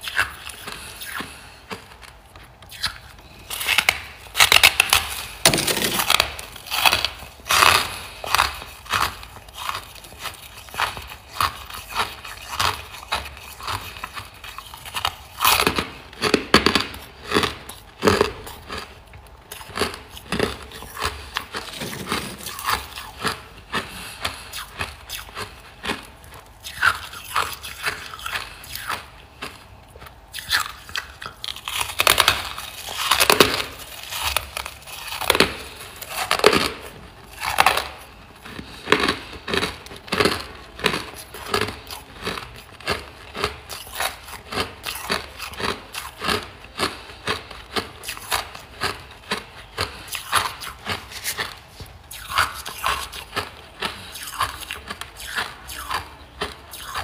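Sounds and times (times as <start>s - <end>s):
frost chunks being crunched: 3.5s - 10.8s.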